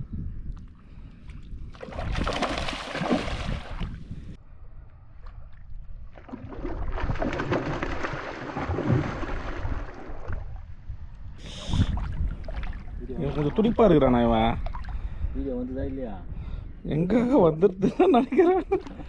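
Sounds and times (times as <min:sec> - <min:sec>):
water splashing and sloshing: 0:00.5 - 0:04.3, 0:05.0 - 0:10.9, 0:11.6 - 0:15.2, 0:18.5 - 0:19.0.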